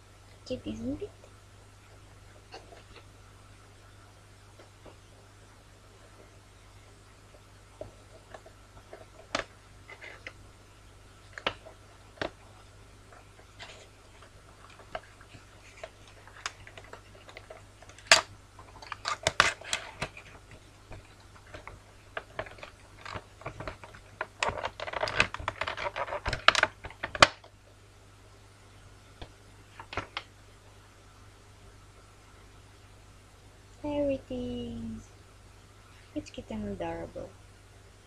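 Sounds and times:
cardboard packaging clicks and crinkles: 0:07.8 - 0:10.4, 0:11.2 - 0:27.6, 0:29.2 - 0:30.4
packaging crackling: 0:11.3 - 0:27.5.

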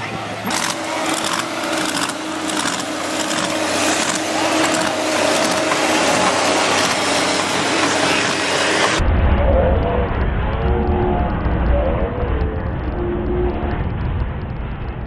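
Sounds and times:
diesel engine under load: 0:00.0 - 0:09.0.

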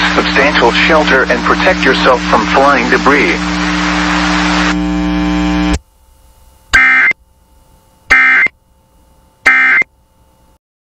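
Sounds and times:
radio stream hum: 0:00.0 - 0:08.6, 0:09.4 - 0:09.9
two-tone digital squawk: 0:06.8 - 0:07.2, 0:08.1 - 0:08.5, 0:09.4 - 0:09.9.

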